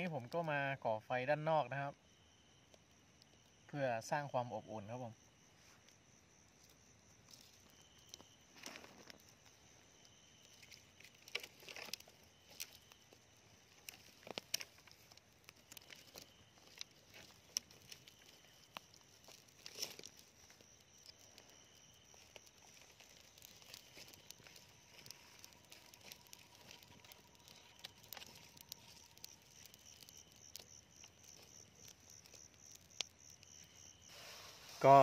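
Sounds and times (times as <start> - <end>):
campfire cracks: 0.0 - 0.8, 1.4 - 35.0
insect trill: 0.0 - 35.0
twigs crackling and snapping: 6.6 - 34.1.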